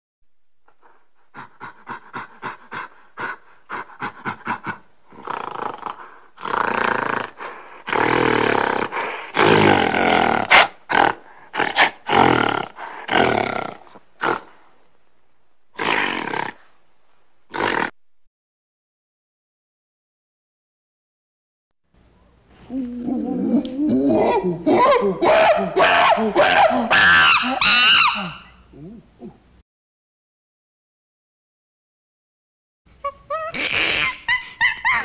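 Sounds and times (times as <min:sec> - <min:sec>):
gorilla calling: 0:22.8 - 0:29.4, 0:33.0 - 0:35.0.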